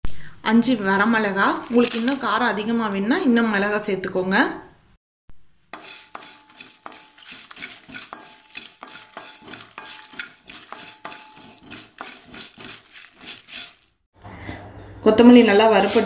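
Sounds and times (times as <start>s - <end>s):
spatula knocking on metal: 5.7s - 13.8s
seeds scraping in metal pan: 5.7s - 14.1s, 15.2s - 16.0s.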